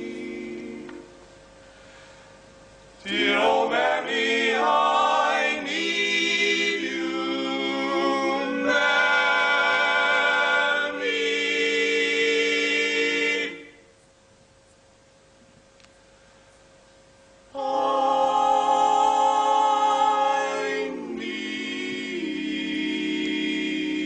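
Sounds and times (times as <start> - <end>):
male quartet singing a cappella: 0.0 - 1.1, 3.0 - 13.8, 17.6 - 24.0.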